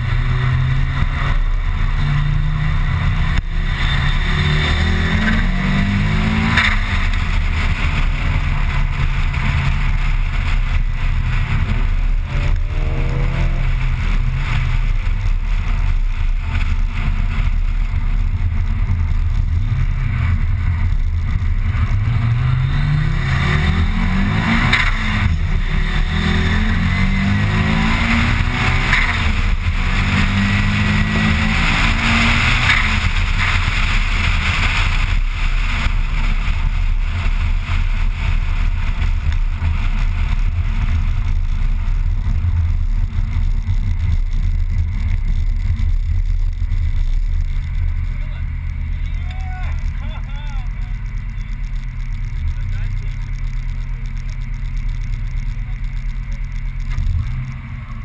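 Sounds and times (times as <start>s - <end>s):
car engine accelerating: 0.0s - 58.0s
road noise inside car: 0.0s - 58.0s.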